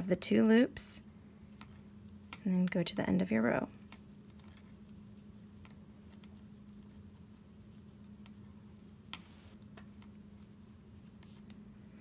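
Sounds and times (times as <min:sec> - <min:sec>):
steady low hum: 0:00.0 - 0:12.0
knitting needles clicking: 0:01.6 - 0:07.0.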